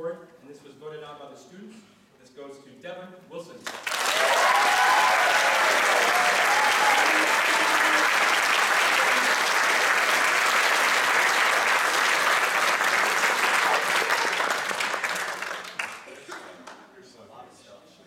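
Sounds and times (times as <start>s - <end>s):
crowd applause: 3.7s - 16.8s.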